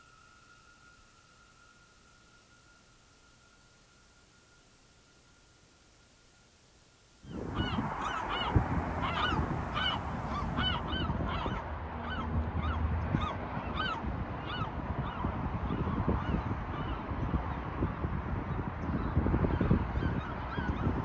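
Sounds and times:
birds calling: 0:07.2 - 0:14.7
low rumble: 0:07.3 - 0:15.7.

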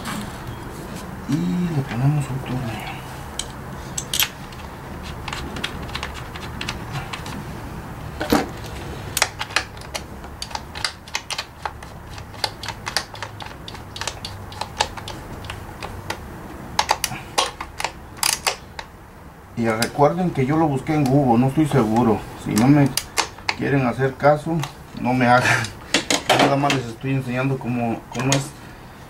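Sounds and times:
hand ratchet clicking: 0:09.2 - 0:16.2.

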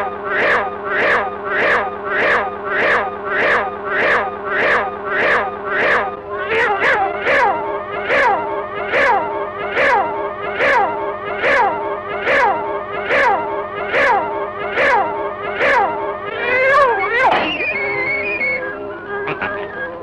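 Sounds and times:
low hum: 0:00.0 - 0:20.0
cartoon cat yowling: 0:04.6 - 0:18.0.

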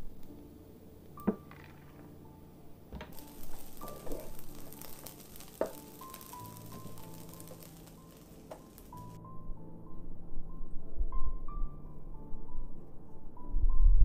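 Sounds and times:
soft background music: 0:00.0 - 0:14.0
rice sizzling in a wok: 0:03.1 - 0:09.2.

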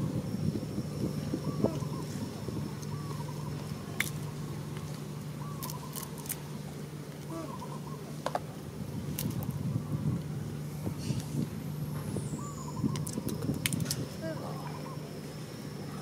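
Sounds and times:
steady low hum: 0:00.0 - 0:16.0
monkey cracking peanut shells: 0:05.6 - 0:06.4.

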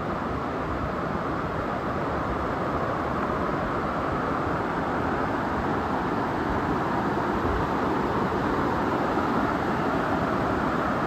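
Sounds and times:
waterfall and stream rushing: 0:00.0 - 0:11.0.

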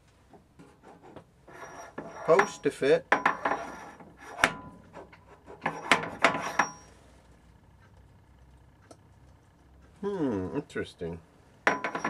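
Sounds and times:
metal taper clinking in spindle: 0:11.6 - 0:12.0.

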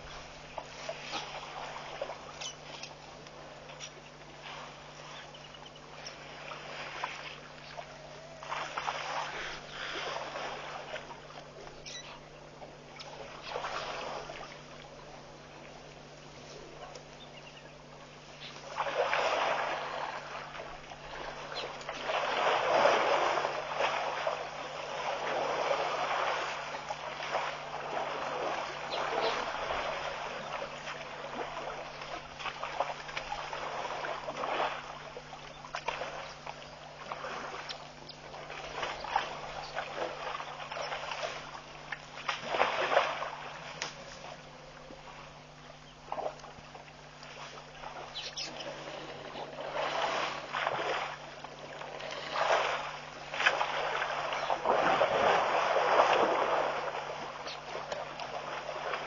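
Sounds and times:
water sloshing and splashing: 0:00.0 - 0:59.0.

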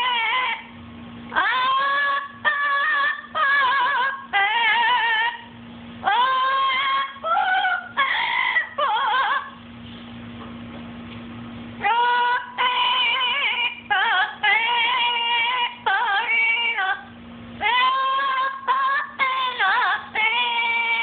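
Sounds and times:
parrot singing a wordless tune: 0:11.8 - 0:21.0.

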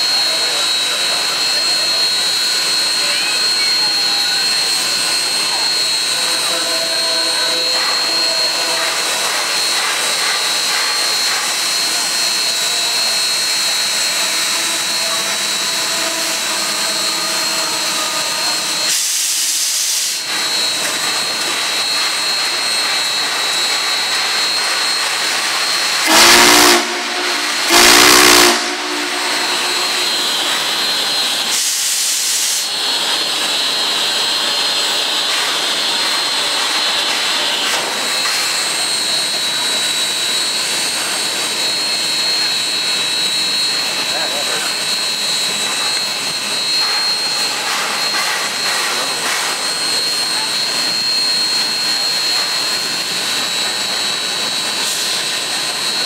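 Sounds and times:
steam whistle blasts: 0:00.0 - 0:32.9
steam locomotive hissing: 0:00.0 - 0:56.0.

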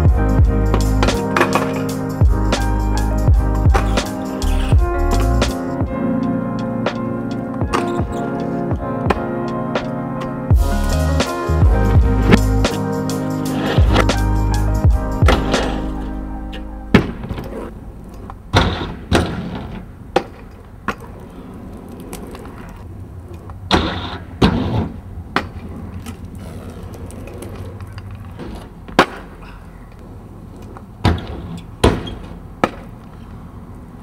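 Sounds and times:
scooter clacking and grinding on metal: 0:00.8 - 0:02.0, 0:23.8 - 0:29.4
scooter wheels rolling on asphalt: 0:00.8 - 0:02.7, 0:17.0 - 0:34.0.

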